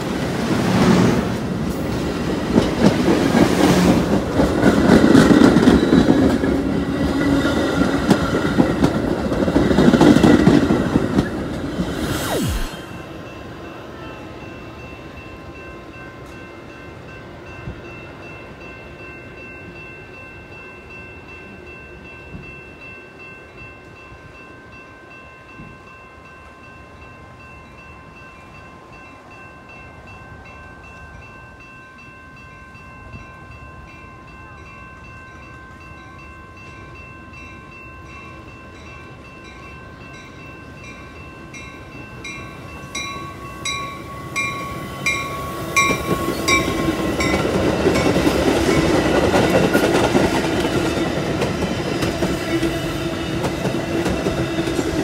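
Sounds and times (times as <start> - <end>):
train approaching: 0.0 - 55.0
crossing warning bell ringing: 12.8 - 55.0
train rumble: 38.8 - 55.0.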